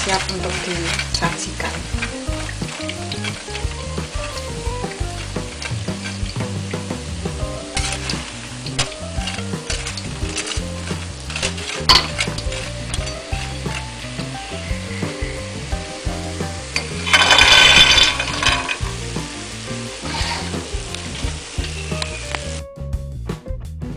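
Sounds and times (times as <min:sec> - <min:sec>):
stirring clicks: 0:00.0 - 0:15.2, 0:16.7 - 0:19.2
peanuts sizzling in hot oil: 0:00.0 - 0:22.6
soft music melody: 0:00.0 - 0:23.9.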